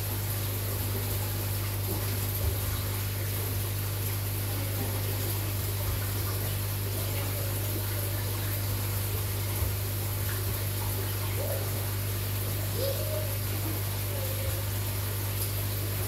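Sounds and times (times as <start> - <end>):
aquarium pump humming: 0.0 - 16.0.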